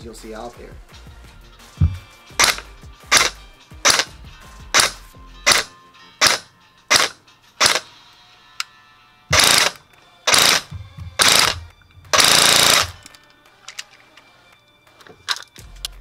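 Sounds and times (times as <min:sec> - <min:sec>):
airsoft rifle firing: 0:01.9 - 0:04.1, 0:04.7 - 0:07.9, 0:09.3 - 0:13.0.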